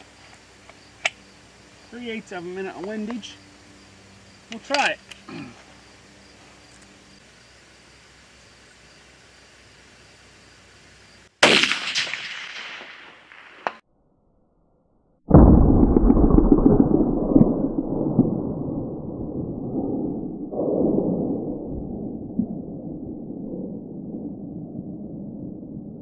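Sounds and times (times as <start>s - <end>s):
rifle shot: 11.4s - 13.8s.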